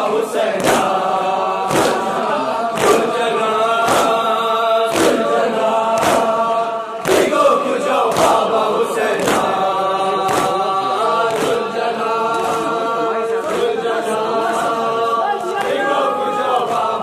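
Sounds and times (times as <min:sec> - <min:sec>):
crowd of men singing: 0:00.0 - 0:17.0
lead singer chanting a lament: 0:00.0 - 0:17.0.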